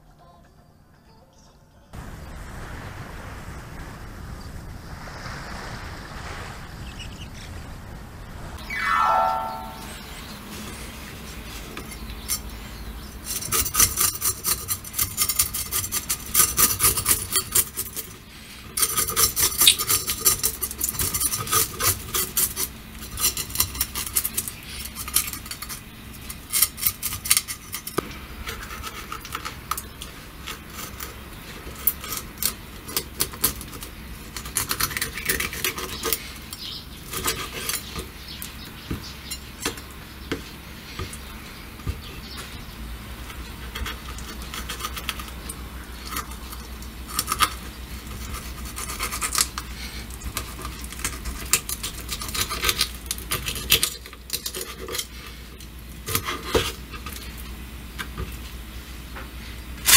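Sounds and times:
knife scraping fish scales: 13.2s - 29.6s, 43.7s - 45.4s, 46.0s - 55.2s.

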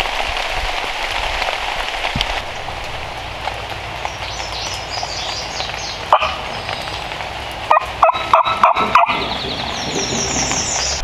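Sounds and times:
songbird singing: 2.2s - 11.0s
turkey gobbling: 6.1s - 6.5s, 7.7s - 10.6s.

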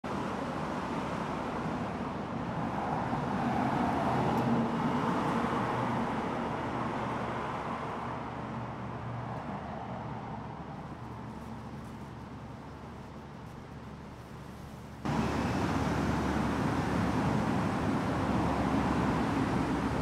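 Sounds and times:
motor vehicle passing by: 15.0s - 20.0s.

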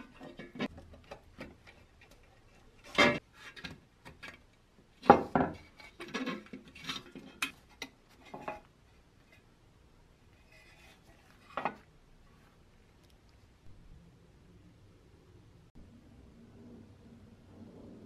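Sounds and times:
metal clanks: 0.0s - 4.4s.

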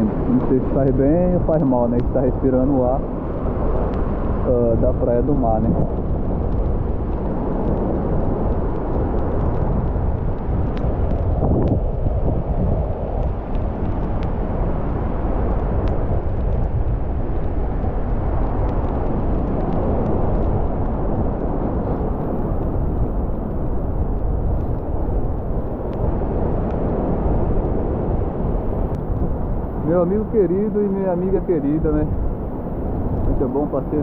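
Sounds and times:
wind buffeting microphone: 0.0s - 34.0s
light ticks: 0.3s - 2.2s, 5.8s - 11.8s, 13.2s - 14.4s, 15.5s - 26.8s.

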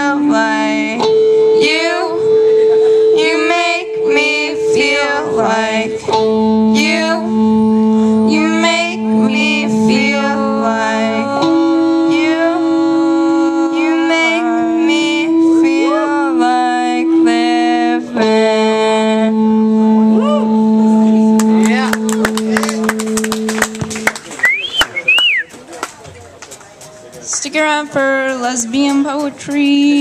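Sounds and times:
two singers singing: 0.0s - 19.7s
electric guitar: 0.0s - 24.2s
held keyboard chords: 0.0s - 24.3s.

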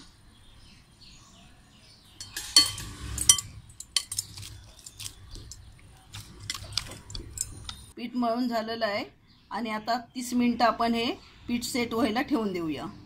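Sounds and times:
bangles clinking against glass: 2.2s - 7.9s
hands kneading oily dough: 3.8s - 7.9s.

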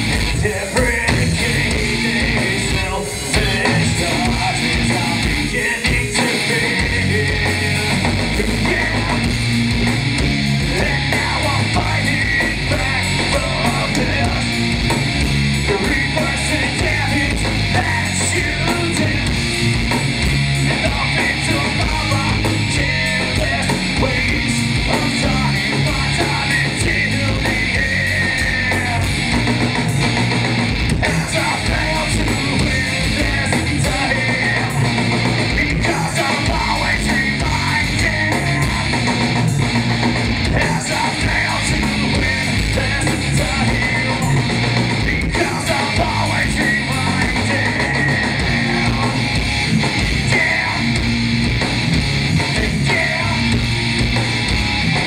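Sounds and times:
bass guitar: 0.0s - 55.0s
drum kit with cymbals: 0.0s - 55.0s
electric guitar: 0.0s - 55.0s.

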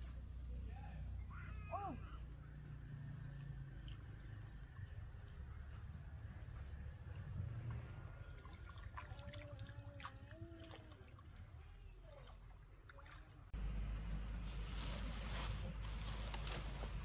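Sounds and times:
water trickling and dripping: 7.7s - 13.5s.

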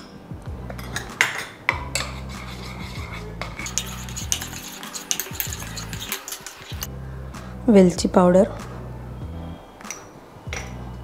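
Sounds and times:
metal spoon scraping steel bowl: 1.8s - 6.9s.

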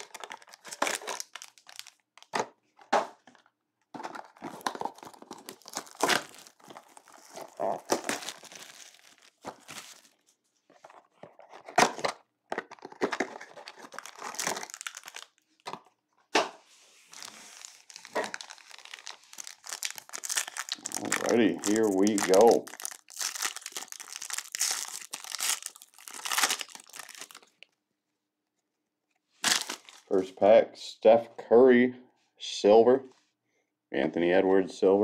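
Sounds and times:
foil packs crinkling and tearing: 0.0s - 2.4s, 4.0s - 10.2s, 12.7s - 15.4s, 17.1s - 27.6s, 29.4s - 30.1s.

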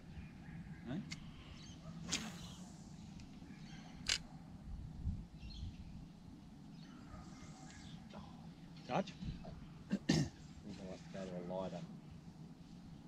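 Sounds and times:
fishing rod cast swish: 2.0s - 2.7s.

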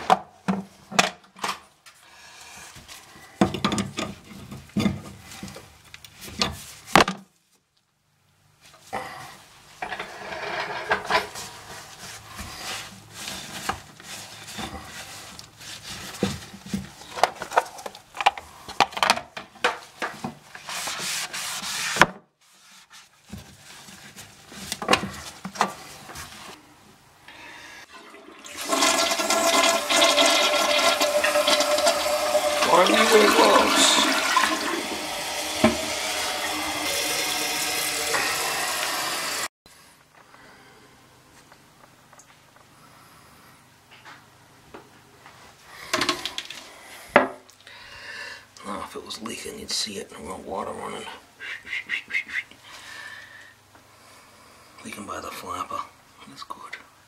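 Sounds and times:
toilet flushing: 27.6s - 39.5s.

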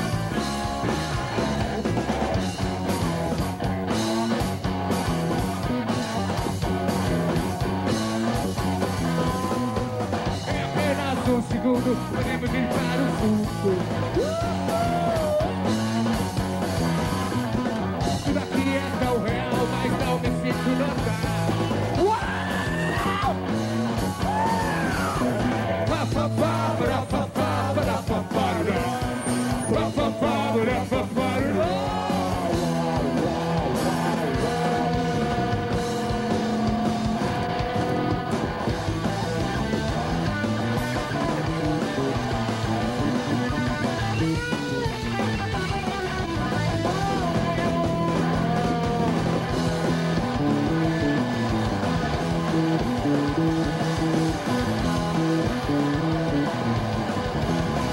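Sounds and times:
bass: 0.0s - 57.9s
drums: 0.0s - 57.9s
electric guitars: 0.0s - 57.9s
person singing: 25.4s - 32.8s.

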